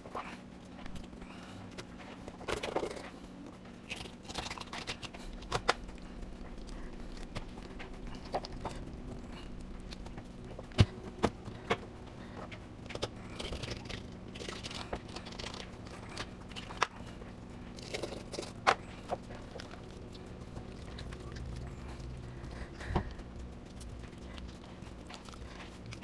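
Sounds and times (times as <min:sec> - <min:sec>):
steady low hum: 0:00.0 - 0:26.0
fish scraping and crackling: 0:03.8 - 0:10.0, 0:13.0 - 0:23.2.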